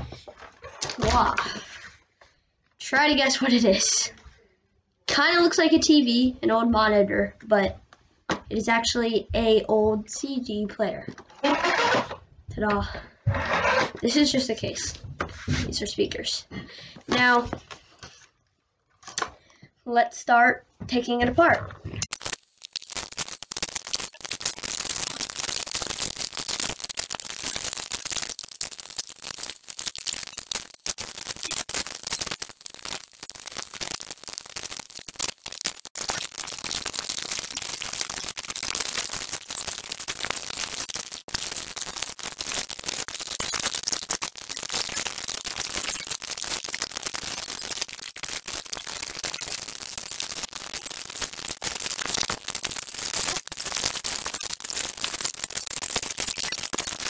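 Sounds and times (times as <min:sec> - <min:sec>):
screws and screwdrivers handled: 0:22.1 - 0:57.0.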